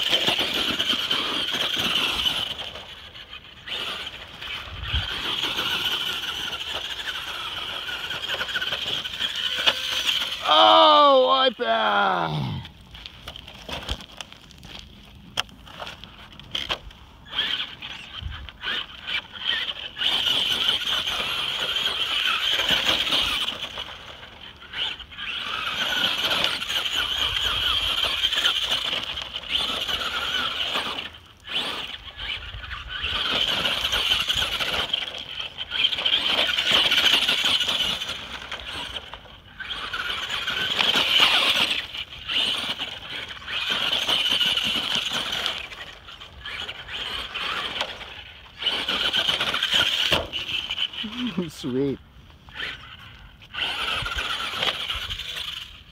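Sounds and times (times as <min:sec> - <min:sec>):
toy truck electric motor whining: 0:00.0 - 0:14.8, 0:15.4 - 0:55.9
tyres on dirt and gravel: 0:00.0 - 0:55.9.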